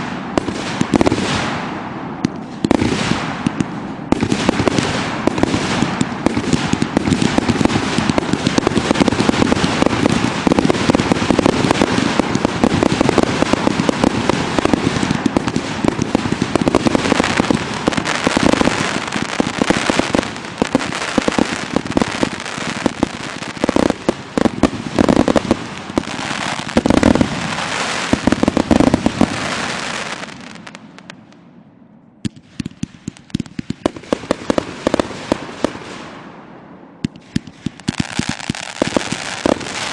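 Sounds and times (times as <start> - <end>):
heavy firework booms: 0.0 - 30.8
fireworks crackling barrage: 0.0 - 31.4, 32.2 - 39.9.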